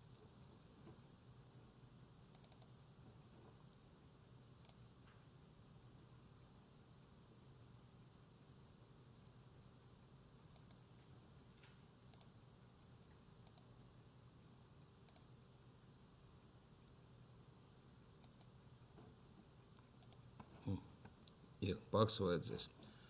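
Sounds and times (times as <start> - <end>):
low steady hum: 0.0 - 23.0
computer mouse clicks: 2.3 - 2.7, 4.6 - 4.8, 10.5 - 10.8, 12.1 - 12.4, 13.4 - 13.7, 15.0 - 15.3, 18.2 - 18.6, 19.9 - 20.5.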